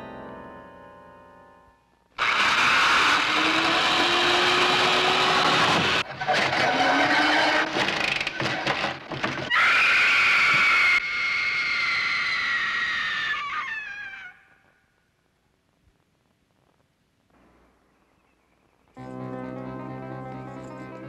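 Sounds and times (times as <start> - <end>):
power drill boring through wood: 2.2 - 7.9
high drawn-out cry: 9.5 - 14.6.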